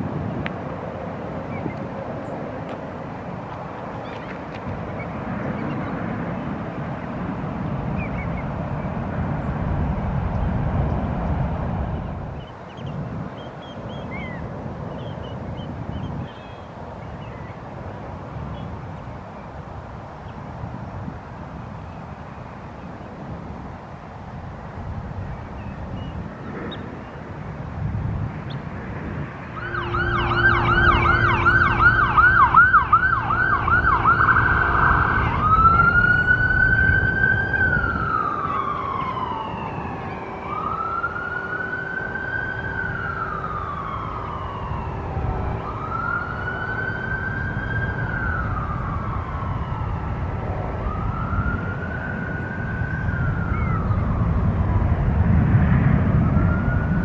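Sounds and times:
emergency vehicle siren: 28.8s - 57.0s.

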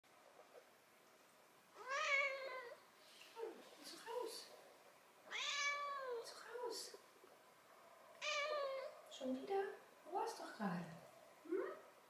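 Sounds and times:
kitten meowing: 5.3s - 6.2s, 8.2s - 8.9s.

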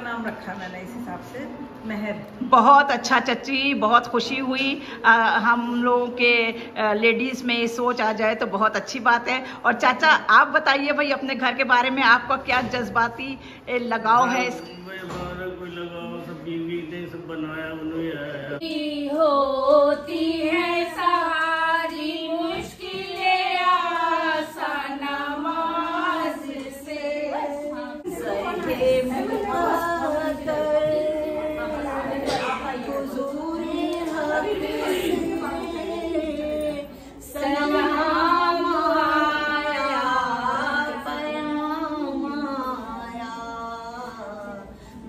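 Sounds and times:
women singing unaccompanied: 18.6s - 45.0s.

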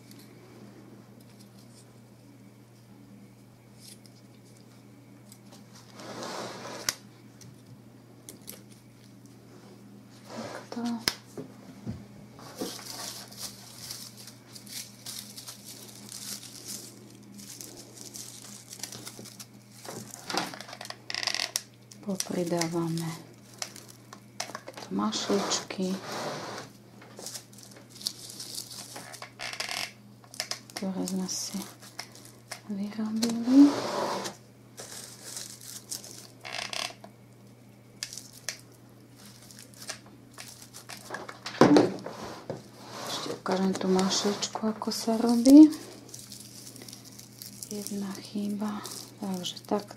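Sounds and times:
faint steady hum: 0.0s - 49.9s
raffia rustling: 12.4s - 20.3s, 25.2s - 29.2s, 33.2s - 36.6s, 42.0s - 49.9s.

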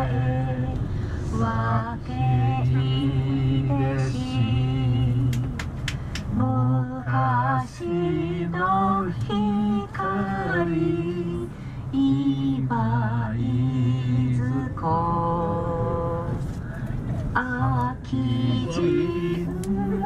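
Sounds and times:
person singing unaccompanied: 17.4s - 20.0s.

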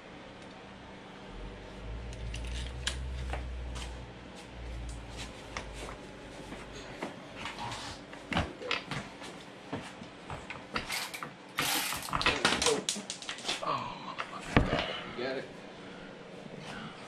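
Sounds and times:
low rubbing rumble: 1.2s - 6.4s.

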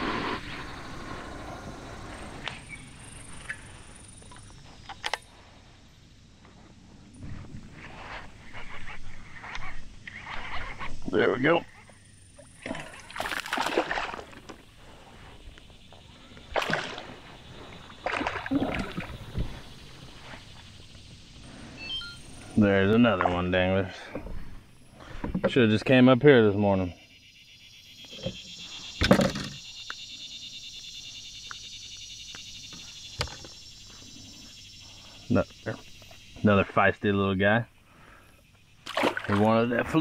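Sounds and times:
insects droning: 0.0s - 40.0s
fish splashing at surface: 12.6s - 14.4s, 16.5s - 17.1s, 38.8s - 39.5s.

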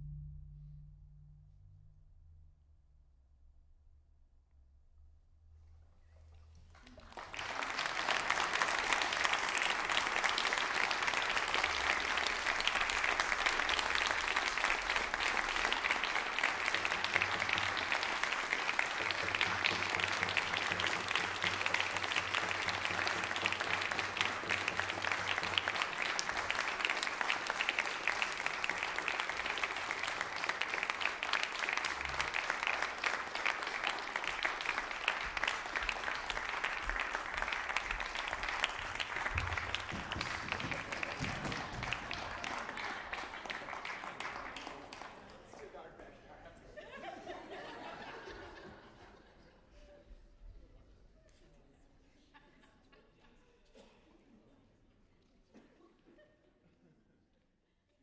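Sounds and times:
audience applauding: 6.7s - 46.2s.

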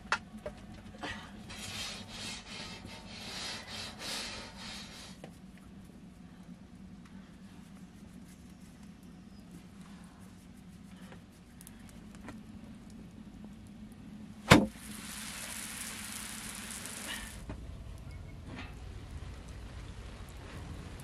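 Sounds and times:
wood fire crackling: 0.0s - 21.0s
steady hiss: 1.4s - 18.1s.

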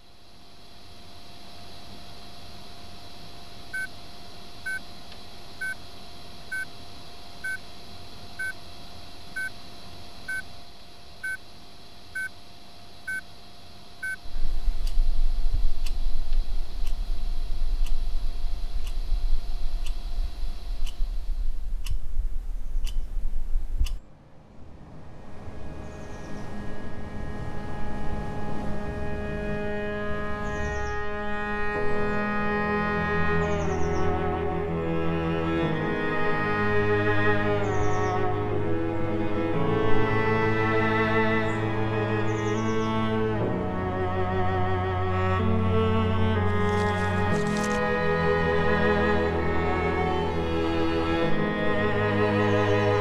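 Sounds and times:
steady hum: 0.0s - 53.0s
sharp ticks: 14.8s - 15.0s, 17.8s - 22.2s, 22.8s - 23.2s.

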